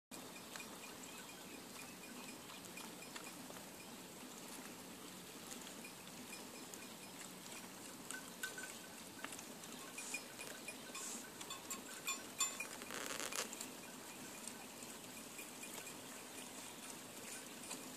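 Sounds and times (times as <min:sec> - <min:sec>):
grass tearing and chewing: 0:07.2 - 0:13.8
small clicks: 0:12.4 - 0:13.8.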